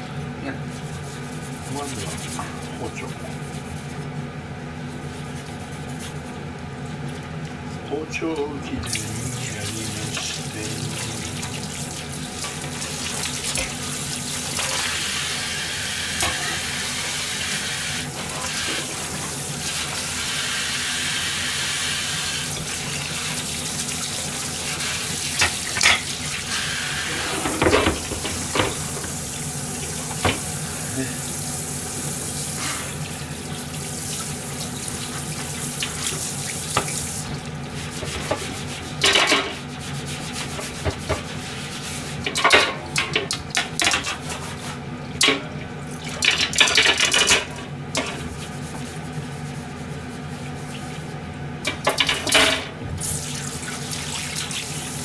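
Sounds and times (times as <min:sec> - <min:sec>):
things clattering in sink: 0:25.3 - 0:26.2, 0:27.1 - 0:29.2, 0:30.0 - 0:30.5, 0:38.0 - 0:39.6, 0:42.2 - 0:44.4, 0:45.2 - 0:48.3, 0:51.6 - 0:52.8
cutting board knocking in sink: 0:27.4 - 0:29.1, 0:40.8 - 0:41.2
tap running into steel sink: 0:27.4 - 0:29.2.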